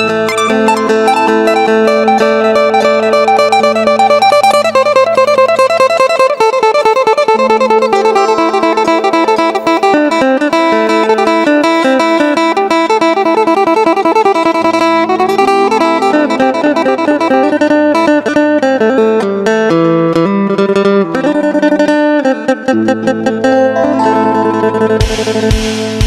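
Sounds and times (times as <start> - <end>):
plucked lute melody: 0.0 - 26.0
low drone note: 23.6 - 25.6.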